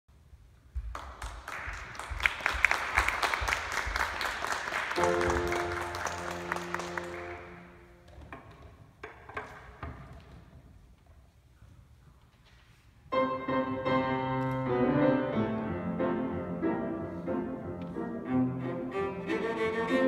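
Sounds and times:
audience applause: 0.9s - 7.8s
piano chord: 5.0s - 8.0s, 13.1s - 18.2s.

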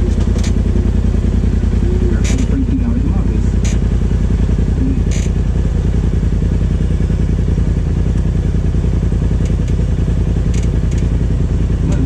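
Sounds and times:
light rattle: 0.0s - 1.4s, 2.0s - 4.2s, 5.0s - 5.6s, 9.3s - 12.0s
engine running at low throttle: 0.0s - 12.0s.

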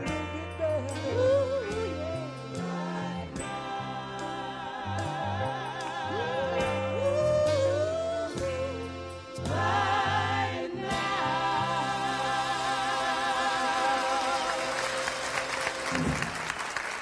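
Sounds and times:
bass line: 0.0s - 13.5s
soul vocals with vibrato: 0.0s - 16.3s.

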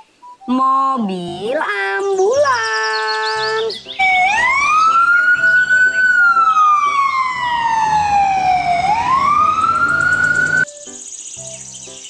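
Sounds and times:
ambulance siren wailing: 3.9s - 10.7s
road and engine noise: 4.0s - 10.7s.

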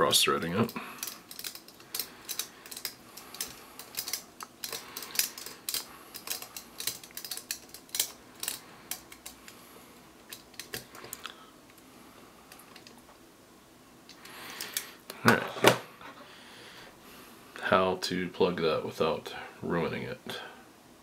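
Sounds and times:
screwdriver clicking on metal screw: 1.0s - 9.4s.

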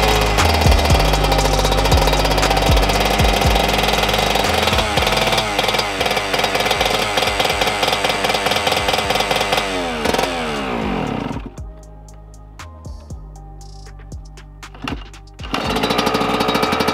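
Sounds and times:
dirt bike engine idling unevenly: 0.0s - 11.8s.

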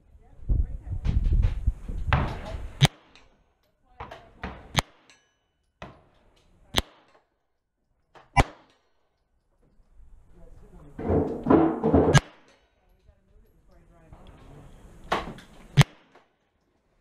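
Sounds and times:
pistol shots: 4.7s - 5.1s, 6.8s - 7.2s, 8.3s - 8.8s, 12.0s - 12.6s, 15.7s - 16.3s.

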